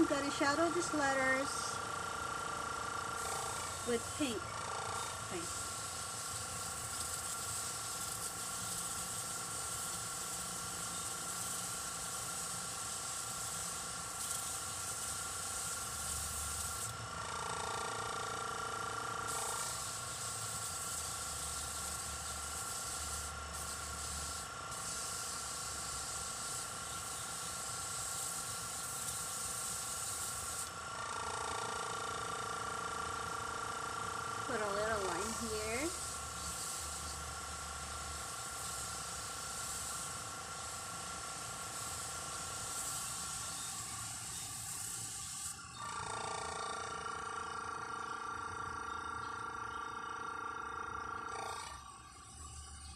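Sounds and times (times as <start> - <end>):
constant low hum: 0.0 - 52.9
airbrush hissing: 3.2 - 17.0, 19.2 - 30.8, 34.5 - 45.8.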